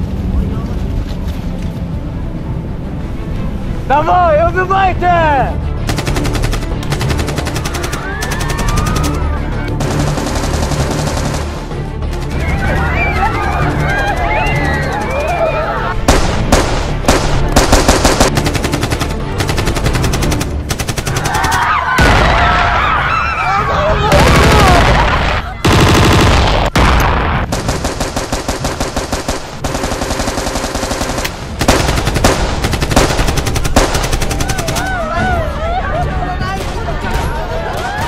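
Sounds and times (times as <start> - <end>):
automatic rifle fire: 16.1 - 21.4, 25.7 - 34.9.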